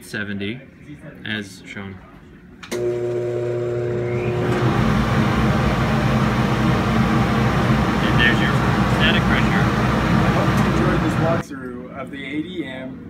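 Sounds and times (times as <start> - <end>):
ventilation blower rushing air: 3.8 - 11.5.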